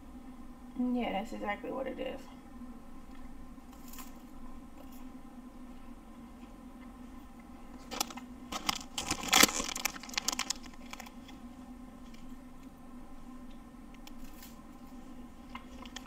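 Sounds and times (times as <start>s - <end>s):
pastry crunching when bitten: 7.9s - 11.2s.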